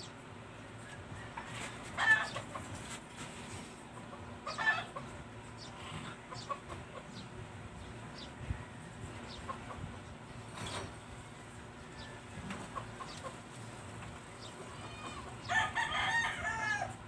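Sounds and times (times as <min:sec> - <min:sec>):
fowl clucking: 0:01.4 - 0:03.0, 0:03.9 - 0:07.2.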